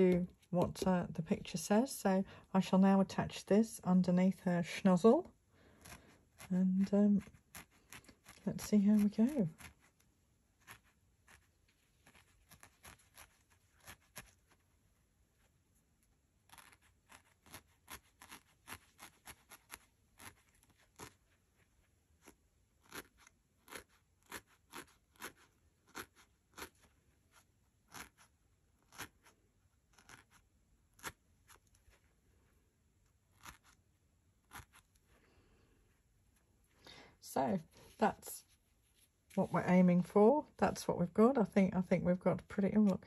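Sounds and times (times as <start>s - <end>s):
felting needle stabbing wool: 5.0s - 14.8s, 15.4s - 32.2s, 33.0s - 35.2s.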